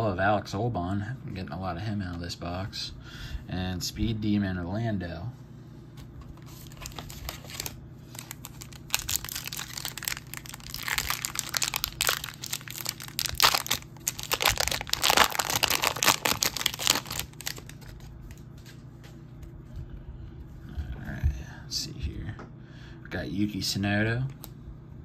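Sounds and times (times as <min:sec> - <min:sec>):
wrapper crinkling and tearing: 0:06.4 - 0:18.4.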